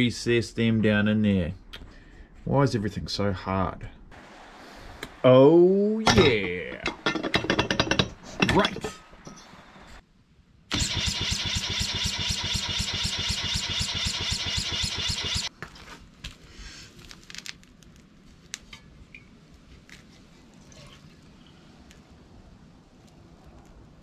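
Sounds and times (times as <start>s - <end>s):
electric starter cranking engine: 10.7s - 15.5s
faint clicks and rustles: 22.9s - 24.0s.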